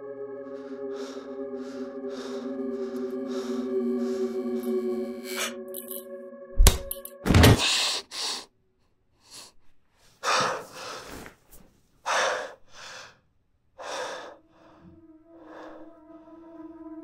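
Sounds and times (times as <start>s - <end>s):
low musical drone: 0.0s - 7.6s, 13.8s - 17.0s
man breathing heavily: 0.1s - 5.6s, 9.2s - 13.2s, 13.8s - 16.4s.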